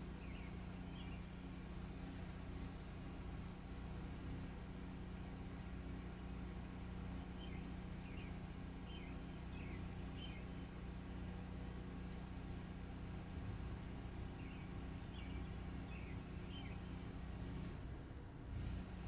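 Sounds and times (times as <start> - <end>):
bird chirping: 0.1 - 1.5, 7.2 - 10.8, 14.3 - 17.1.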